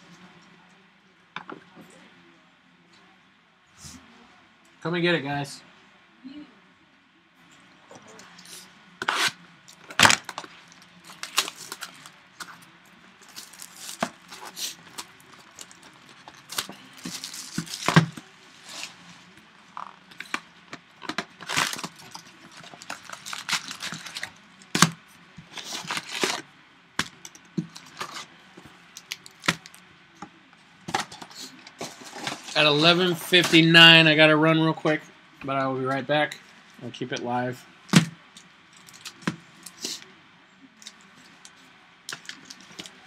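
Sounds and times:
foil wrappers crinkling: 9.0s - 12.6s, 13.2s - 19.0s, 21.1s - 26.4s.

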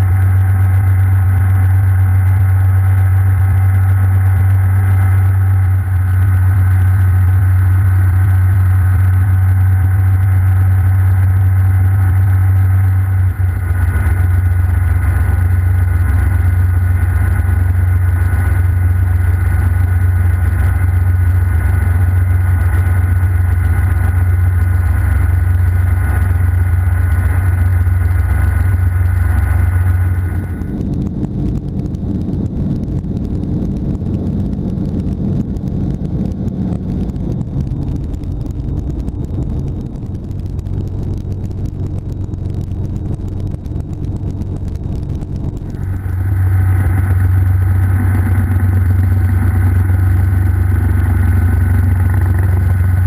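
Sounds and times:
faint whine: 0.0s - 53.0s
helicopter engine and rotor drone: 0.0s - 53.0s.

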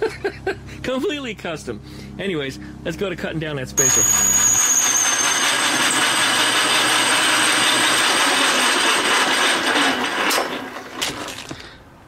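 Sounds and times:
lathe cutting metal: 3.8s - 10.8s
lathe motor hum: 3.8s - 11.0s.

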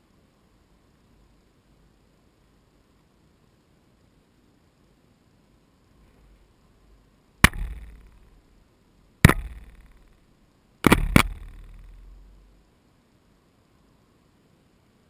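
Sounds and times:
gull knocking on plastic housing: 7.4s - 8.2s, 9.2s - 10.1s, 10.9s - 12.3s.

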